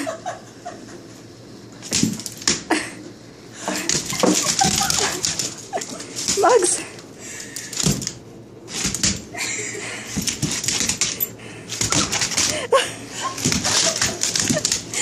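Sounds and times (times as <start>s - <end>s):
dog claws clicking on wood floor: 1.8s - 2.6s, 3.9s - 6.7s, 7.4s - 9.2s, 10.1s - 12.6s, 13.4s - 14.9s.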